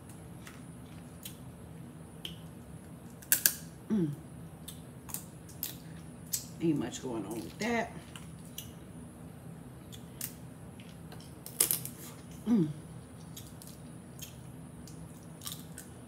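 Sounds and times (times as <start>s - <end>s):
crawfish shells cracking: 3.1s - 3.6s, 9.9s - 12.0s
person humming: 3.9s - 4.2s, 12.4s - 12.9s.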